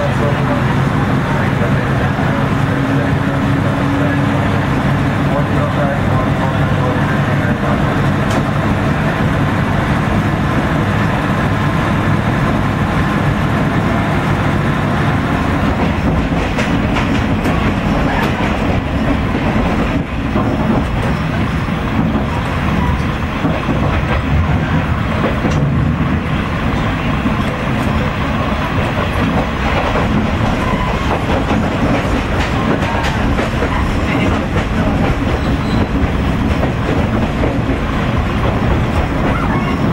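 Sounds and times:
diesel railcar engine rumble: 0.0 - 39.9
wheels clacking over rail joints: 13.5 - 39.9.

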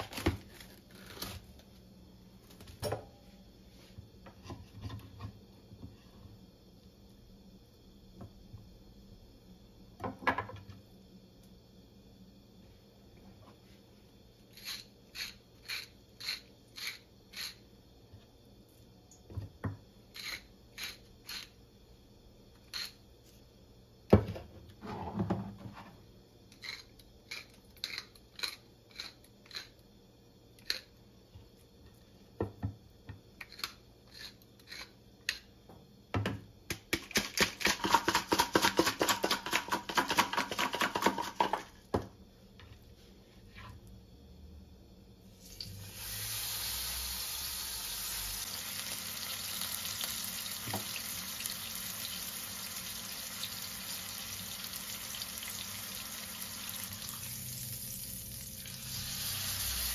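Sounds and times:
spice shaker shaking: 37.0 - 41.7.

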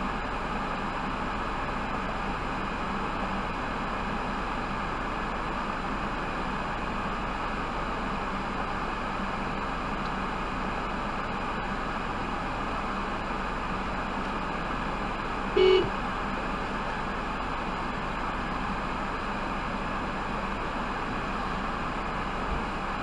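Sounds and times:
low hum: 15.5 - 16.2
short beep: 15.6 - 16.0.

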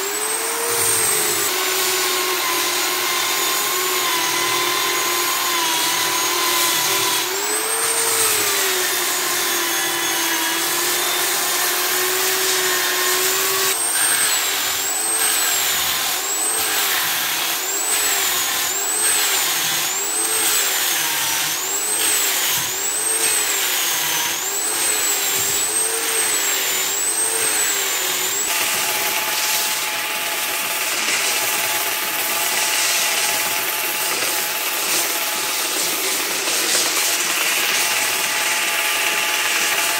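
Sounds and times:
angle grinder whining: 0.0 - 39.9
disc sander whining: 0.0 - 39.9.

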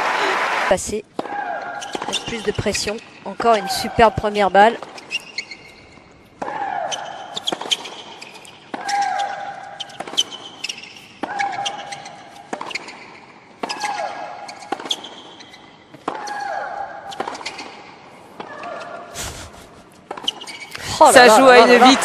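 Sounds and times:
tennis racket hitting ball: 6.4 - 18.6.

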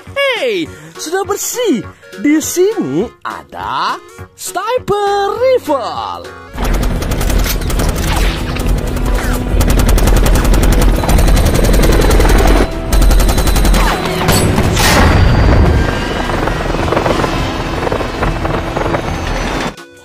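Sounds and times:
action film music: 6.2 - 20.0
helicopter rotor noise: 6.6 - 14.2, 15.4 - 19.8
rapid automatic gunfire: 6.6 - 14.8, 15.6 - 19.5.

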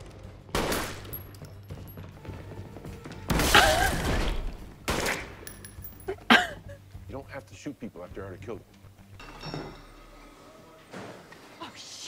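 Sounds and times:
background music: 0.0 - 12.0
gunshots: 0.5 - 1.2, 3.3 - 5.4.

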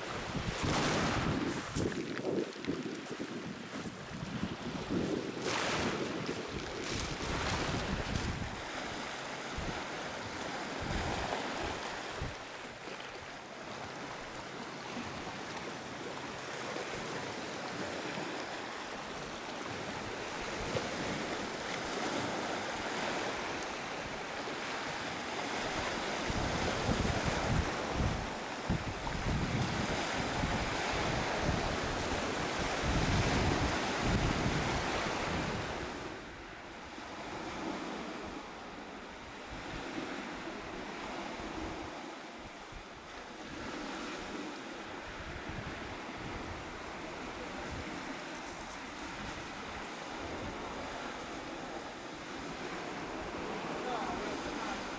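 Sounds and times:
wind buffeting microphone: 0.0 - 12.4, 24.9 - 36.2
waves washing onto pebbles: 0.0 - 36.1, 45.8 - 54.9.

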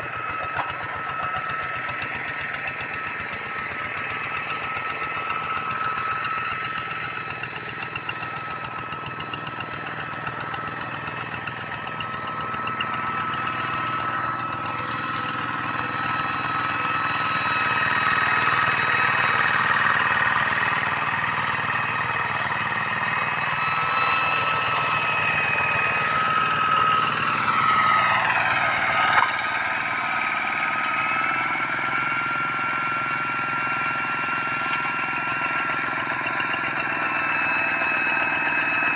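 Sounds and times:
diesel engine running: 0.0 - 38.9.

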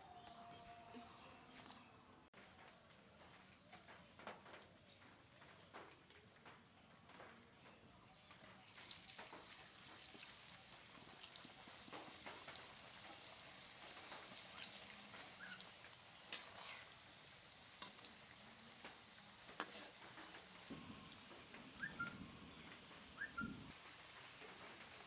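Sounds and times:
oil sizzling and crackling: 7.9 - 25.0.

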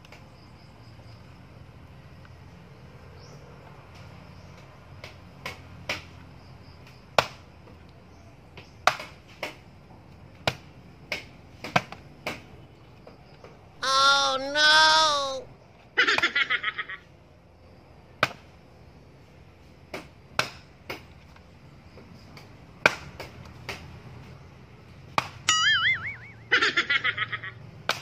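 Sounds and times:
axe striking firewood: 18.2 - 18.4, 19.9 - 21.0
springy boing: 25.5 - 26.5
sliding tone sound effect: 25.5 - 26.6.

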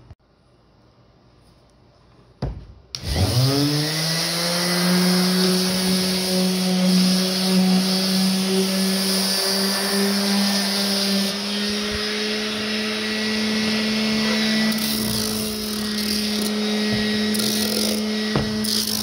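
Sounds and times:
orbital sander humming: 3.0 - 19.0.

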